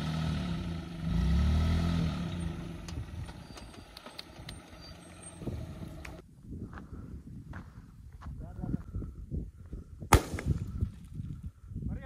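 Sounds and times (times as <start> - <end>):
car engine revving: 0.0 - 3.7.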